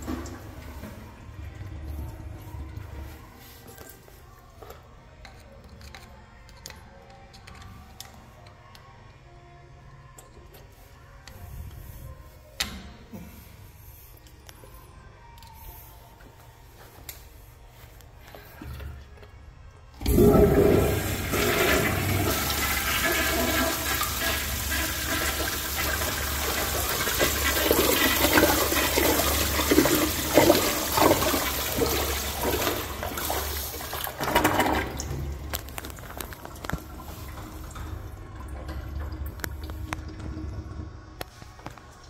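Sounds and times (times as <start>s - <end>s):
toilet flushing: 0.0s - 1.2s, 20.0s - 41.7s.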